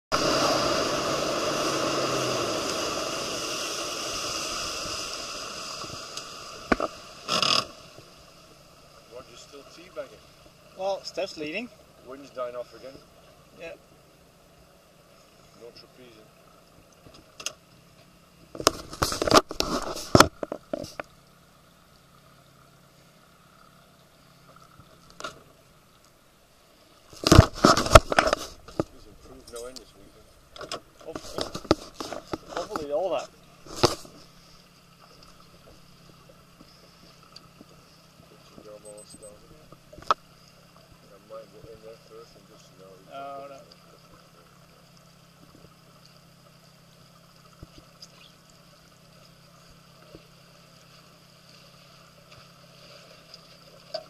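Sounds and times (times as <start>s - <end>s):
faint steady hum: 0.2s - 54.0s
camera handling knock and rustle: 27.2s - 28.9s, 30.6s - 32.6s
rumbling bumps on microphone: 27.2s - 29.4s.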